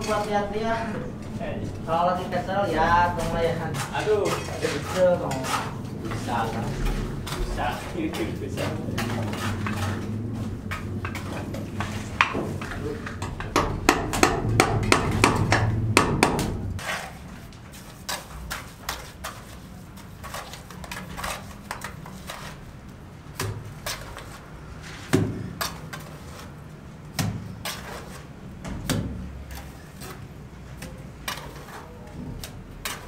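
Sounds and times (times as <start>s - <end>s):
hammer-like knocks and taps: 11.8s - 16.6s.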